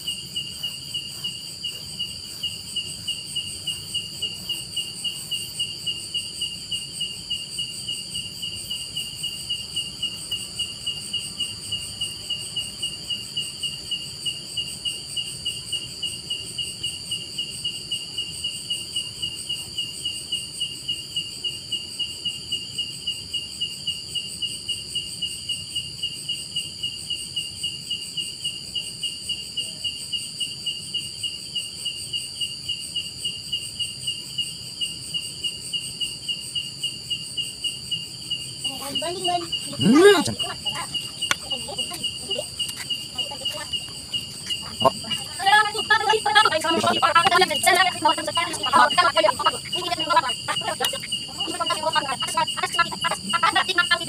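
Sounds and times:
insect chirping: 0.0 - 54.0.

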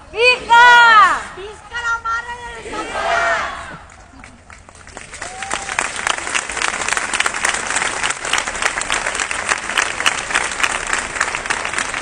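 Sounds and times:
crowd applauding: 3.9 - 12.0.

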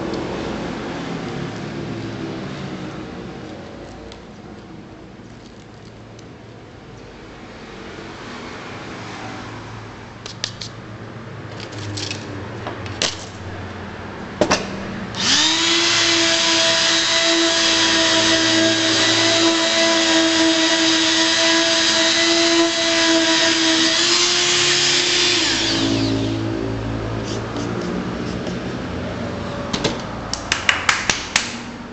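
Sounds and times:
electric sander motor whine: 15.2 - 26.6.

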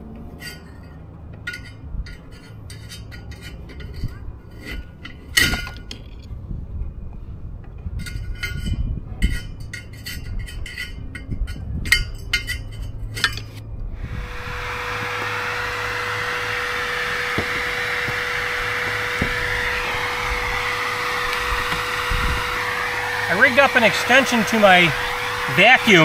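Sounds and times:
metal tool tapping and scraping: 0.4 - 6.2, 8.0 - 13.6
vacuum cleaner running: 14.0 - 26.0.

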